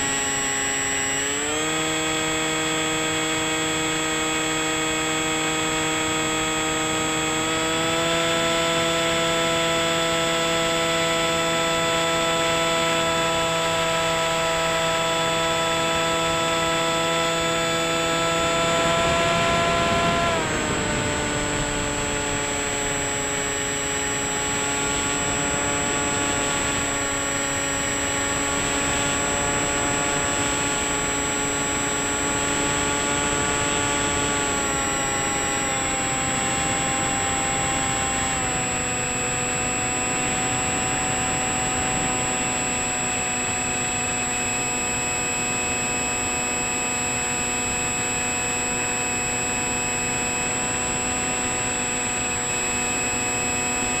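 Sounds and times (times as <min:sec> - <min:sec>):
electric motor and propeller buzzing: 0:00.0 - 0:54.0
wind rush: 0:18.8 - 0:23.6.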